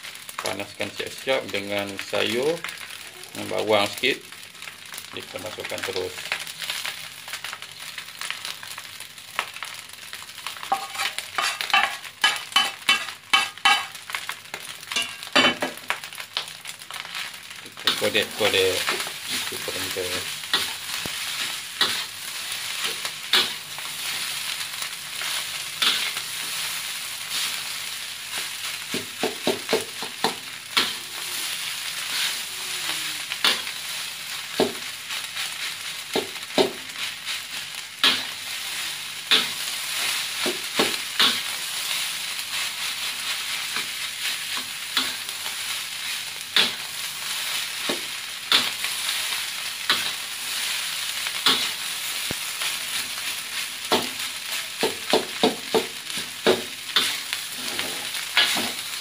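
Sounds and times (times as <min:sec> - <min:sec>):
rice sizzling in wok: 0:00.0 - 0:59.0
metal spatula scraping wok: 0:10.7 - 0:13.9, 0:17.9 - 0:24.3, 0:56.9 - 0:58.9.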